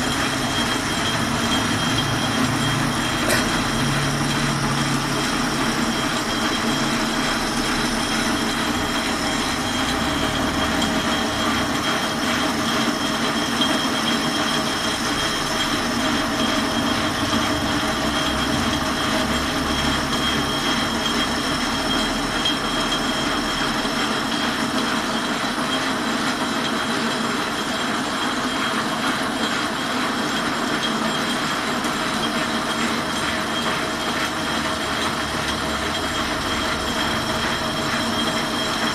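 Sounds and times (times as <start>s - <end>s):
lathe grinding hissing cut: 0.0s - 23.8s
lathe running noise: 0.0s - 38.9s.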